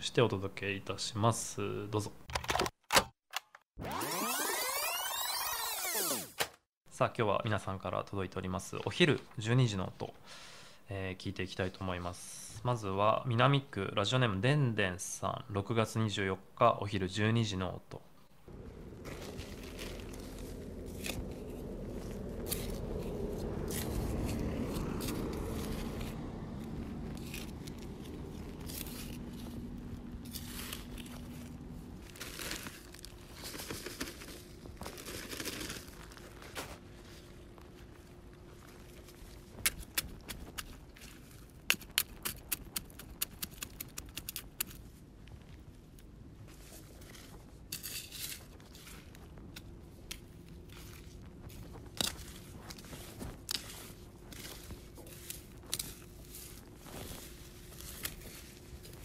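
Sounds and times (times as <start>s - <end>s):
shovel digging into soil: 19.0s - 31.6s, 47.0s - 59.0s.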